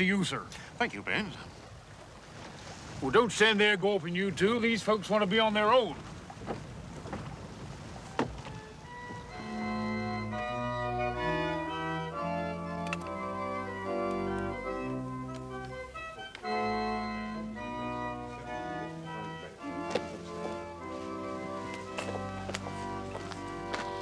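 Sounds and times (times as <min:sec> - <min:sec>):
organ playing slow chords: 0:08.5 - 0:24.0.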